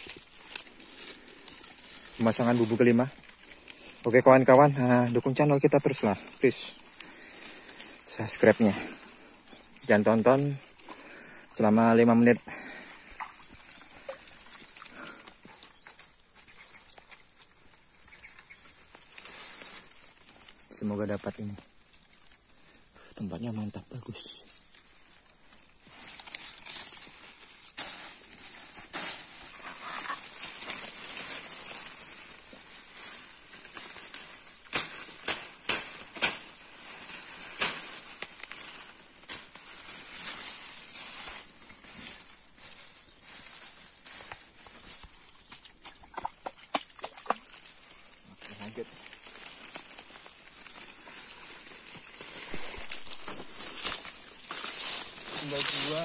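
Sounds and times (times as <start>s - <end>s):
insects buzzing: 0.0s - 56.0s
sharp cracks or knocks: 34.7s - 36.5s.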